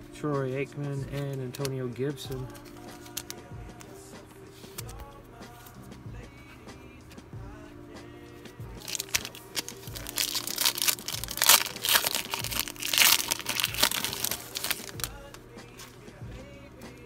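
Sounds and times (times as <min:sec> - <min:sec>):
background music with steady beat: 0:00.0 - 0:17.0
wrapper tearing and crinkling: 0:02.4 - 0:03.4, 0:08.8 - 0:15.2.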